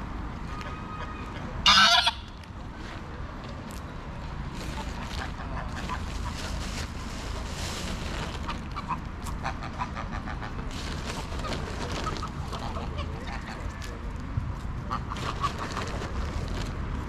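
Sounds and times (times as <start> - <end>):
geese honking: 1.7 - 2.3.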